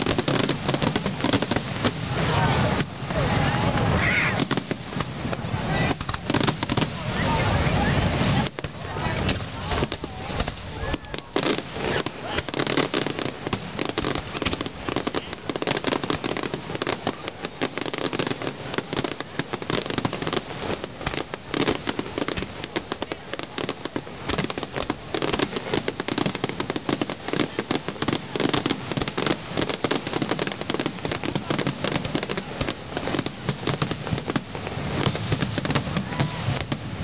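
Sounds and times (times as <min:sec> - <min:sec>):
fireworks bangs and crackles: 0:00.0 - 0:37.0.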